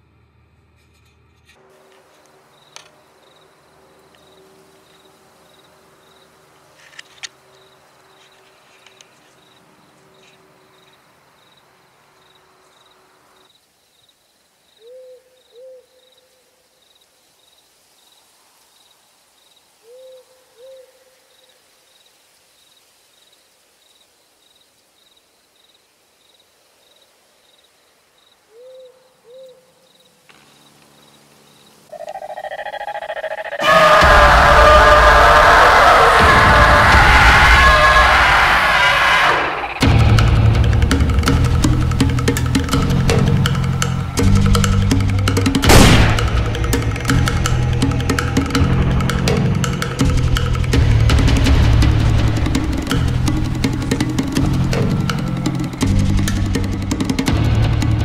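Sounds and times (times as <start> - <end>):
crickets chirping: 0.0 - 57.2
owl hooting: 14.8 - 16.4, 19.8 - 21.4, 28.5 - 29.9, 31.7 - 39.8.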